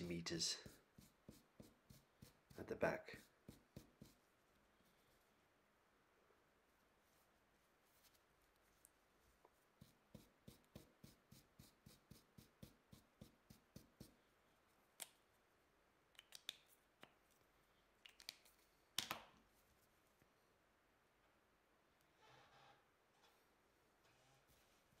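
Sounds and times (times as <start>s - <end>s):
marker scratching on paper: 0.6s - 4.3s, 9.8s - 14.1s.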